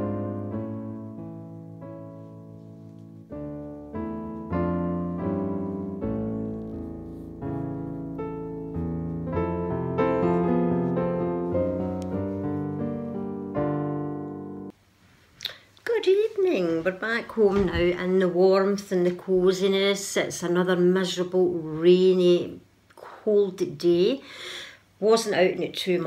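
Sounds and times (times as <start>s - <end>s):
gentle piano music: 0.0s - 14.8s.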